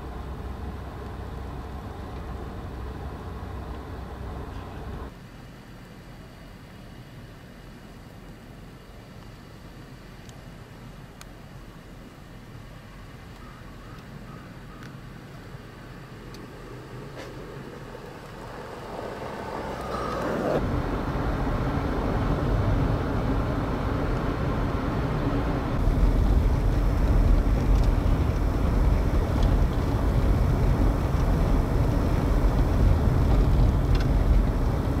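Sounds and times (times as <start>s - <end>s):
engine hum: 0.0s - 35.0s
tyre and road noise: 8.5s - 35.0s
car driving through deep snow: 15.5s - 35.0s.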